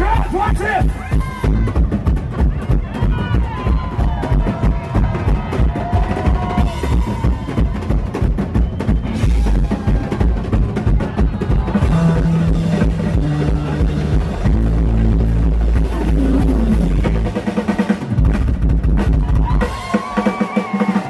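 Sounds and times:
fast hand drumming: 0.0 - 21.0
electric bass: 8.7 - 19.5.

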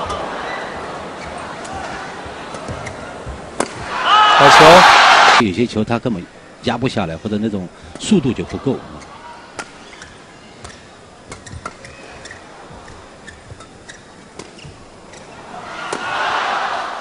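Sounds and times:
racket striking shuttlecock: 3.6 - 3.9.

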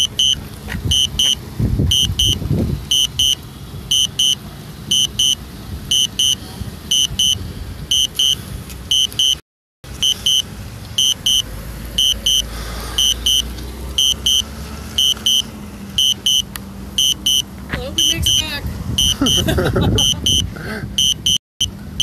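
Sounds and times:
remote controller double beeps: 0.0 - 9.4, 10.0 - 10.4, 11.0 - 11.4, 12.0 - 12.4, 13.0 - 13.4, 14.0 - 14.4, 15.0 - 15.4, 16.0 - 16.4, 17.0 - 17.4, 19.0 - 19.4, 21.0 - 21.4
low steady rumble: 0.0 - 22.0.

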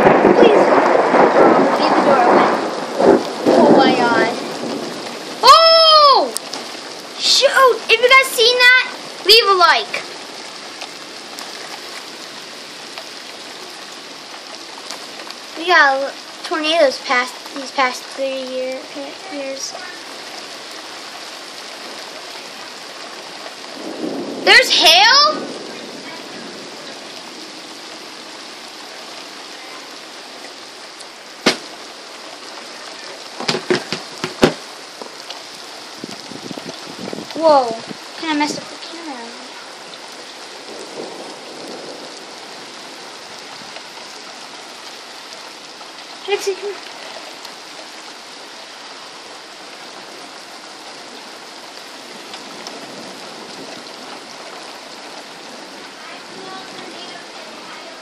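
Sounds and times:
steady rain pouring: 0.0 - 58.0
sharp knocks and clicks: 33.4 - 34.6.

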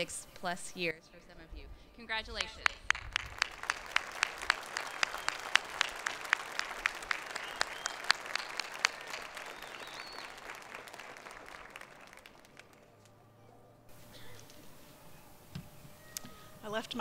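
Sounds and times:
close hands clapping: 2.4 - 13.2
crowd applauding: 2.6 - 13.2.

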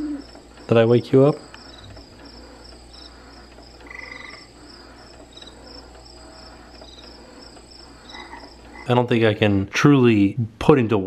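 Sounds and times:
crickets chirping: 0.0 - 9.2
frog-like croak: 3.8 - 4.5, 8.1 - 9.0.

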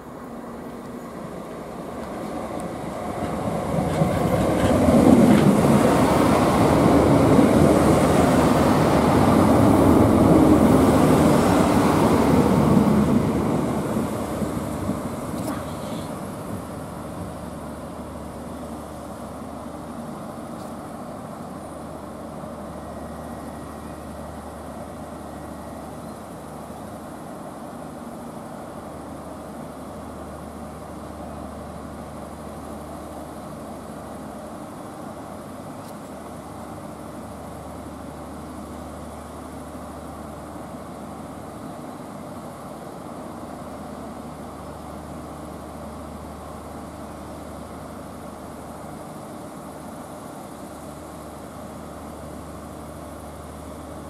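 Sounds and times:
diesel train engine humming: 0.0 - 54.0.

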